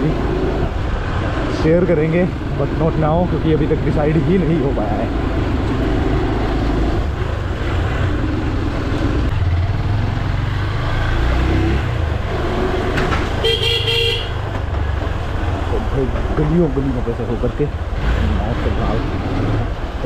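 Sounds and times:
vehicle horn toot: 13.4 - 14.4.

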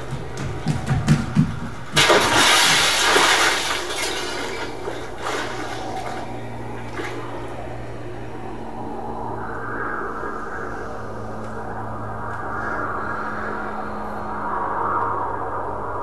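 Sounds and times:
loud rushing crashing noise: 0.0 - 7.8
low hum: 0.0 - 16.0.

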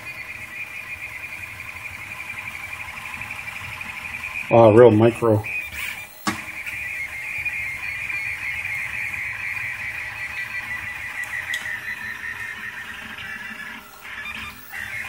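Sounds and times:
printer motors whining: 0.0 - 15.0.

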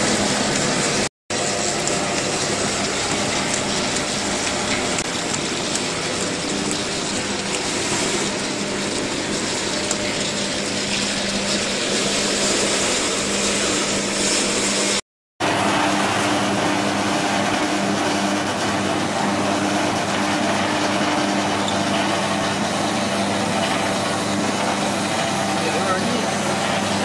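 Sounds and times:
machine motor hum: 15.4 - 27.0.

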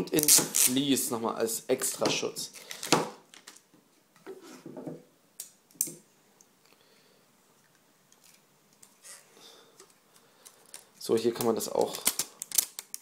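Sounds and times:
plastic wrapping rustle: 10.5 - 13.0.

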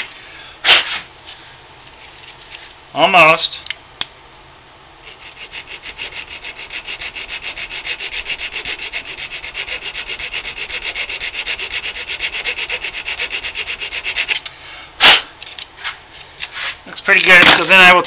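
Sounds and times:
file scraping metal tube: 5.0 - 15.2.

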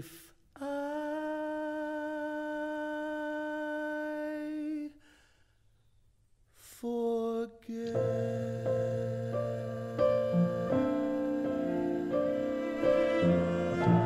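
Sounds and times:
person humming held note: 7.9 - 14.0.

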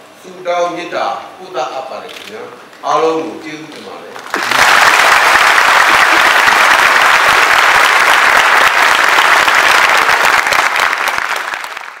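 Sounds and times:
large audience applauding: 4.2 - 12.0.

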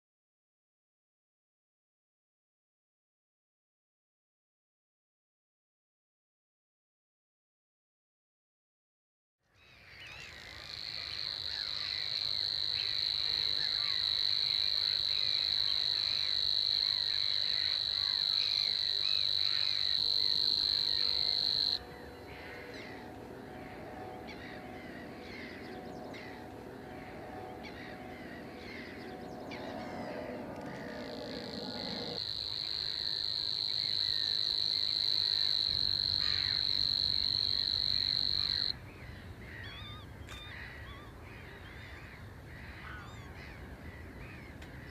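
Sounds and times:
warbler reeling trill: 10.1 - 38.7.

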